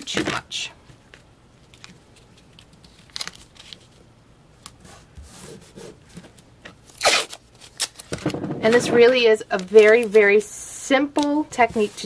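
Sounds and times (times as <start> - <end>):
tape pulled and torn off roll: 6.8 - 10.1.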